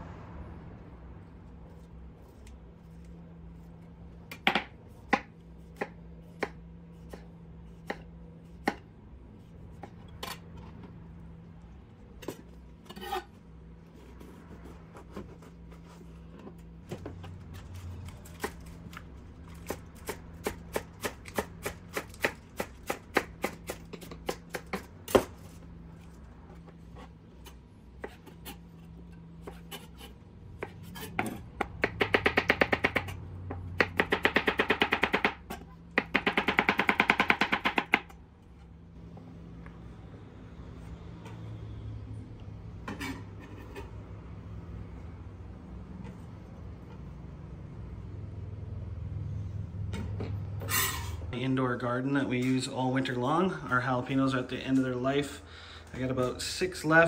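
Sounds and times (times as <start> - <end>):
knife chopping vegetables: 4.3 - 8.9, 17.1 - 25.6, 29.4 - 38.1.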